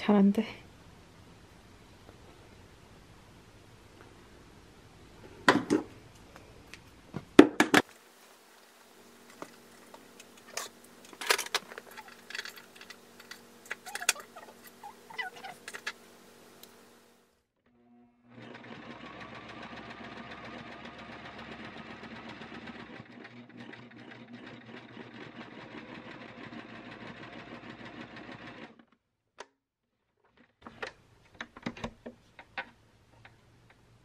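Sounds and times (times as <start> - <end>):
sewing machine stitching: 18.3 - 28.9.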